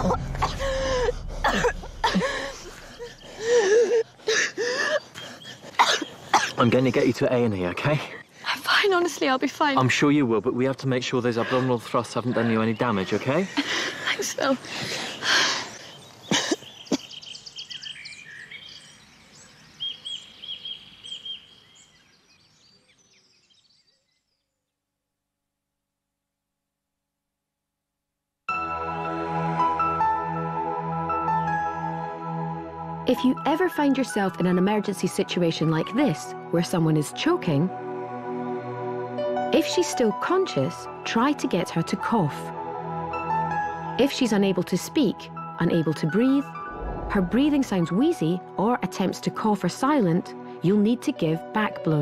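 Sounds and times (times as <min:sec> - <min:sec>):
woman coughing and gasping: 0:00.0 - 0:04.9, 0:05.7 - 0:06.7, 0:16.3 - 0:17.2
birds singing and chirping: 0:02.8 - 0:13.6, 0:14.6 - 0:24.6.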